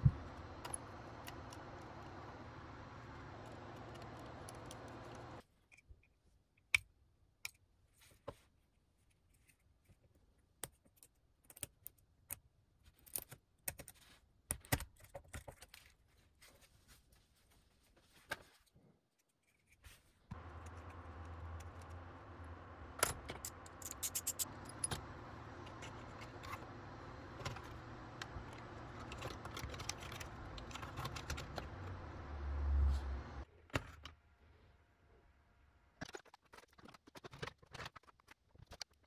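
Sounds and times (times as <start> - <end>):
steady low hum: 0.0 - 5.4, 20.3 - 33.5
plastic parts clicking and tapping: 20.3 - 32.3.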